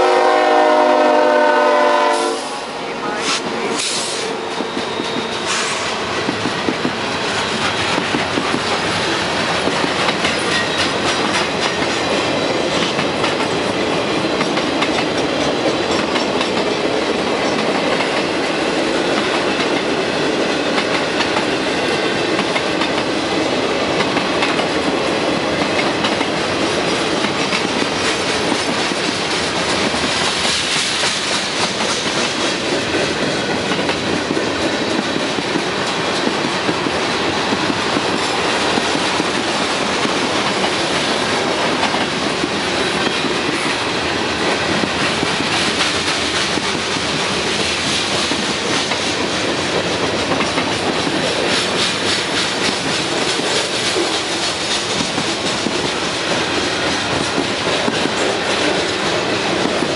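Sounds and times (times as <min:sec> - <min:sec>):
clickety-clack of rails: 0:00.0 - 0:59.9
freight train wheels rumbling: 0:00.0 - 0:59.9.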